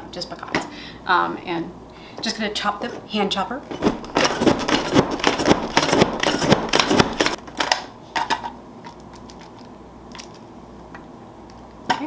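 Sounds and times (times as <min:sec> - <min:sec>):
food chopper plastic clacks: 0:03.8 - 0:08.4.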